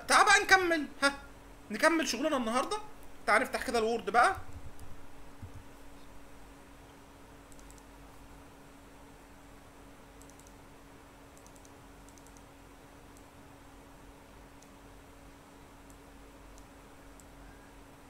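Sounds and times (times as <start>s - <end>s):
low electrical hum: 0.0s - 18.0s
computer mouse and keys clicking: 7.5s - 8.0s, 10.2s - 10.6s, 11.3s - 12.5s, 13.1s - 13.4s, 15.8s - 17.6s.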